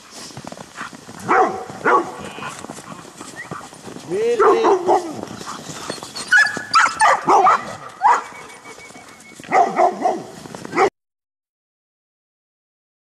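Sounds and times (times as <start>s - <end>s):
dogs barking and yipping: 1.2s - 3.8s, 4.4s - 10.9s.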